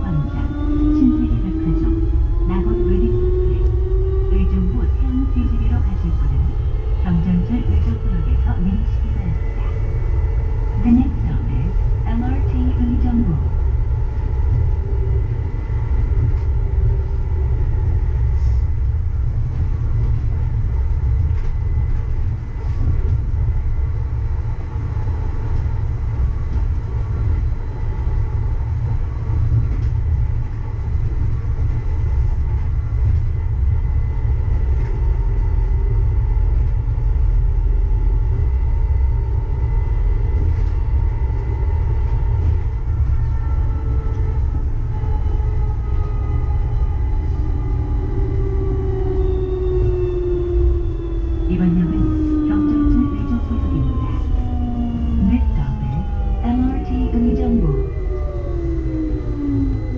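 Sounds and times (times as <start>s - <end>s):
train rumbling: 0.0s - 59.9s
traction motor whine: 37.3s - 59.9s.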